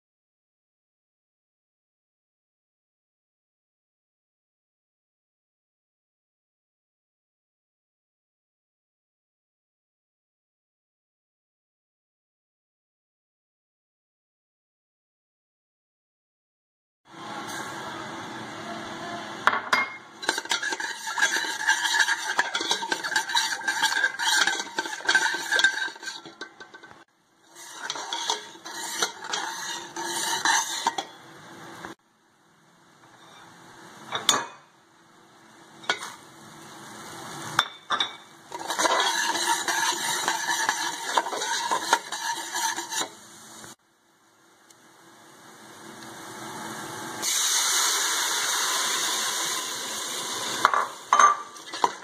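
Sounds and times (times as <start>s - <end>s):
metal skimmer scraping pot: 20.2s - 31.1s, 38.5s - 43.2s, 50.6s - 52.0s
semolina sizzling in fat: 20.2s - 32.0s, 35.4s - 37.6s, 38.3s - 43.8s, 44.6s - 52.0s.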